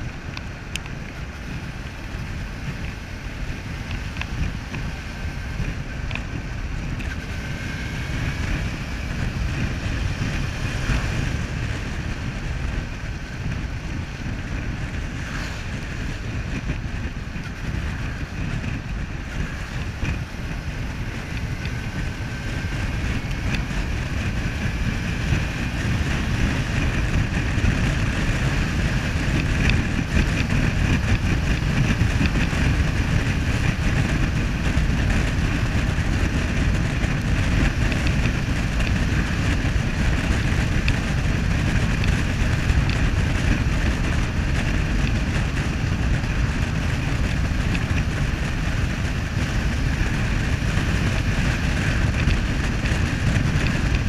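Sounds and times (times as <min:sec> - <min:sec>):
motorcycle engine running: 0:00.0 - 0:54.0
wind buffeting microphone: 0:00.0 - 0:54.0.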